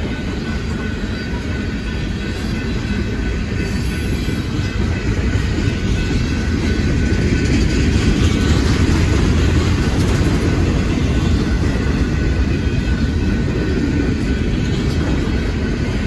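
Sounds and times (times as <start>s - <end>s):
freight train wheels rumbling on rails: 0.0s - 16.0s.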